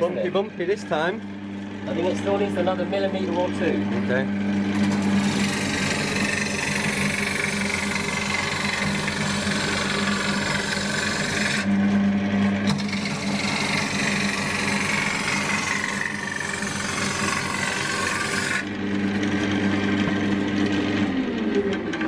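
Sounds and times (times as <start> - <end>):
lathe motor humming: 0.0 - 22.0
turning tool shaving wood: 4.6 - 21.8.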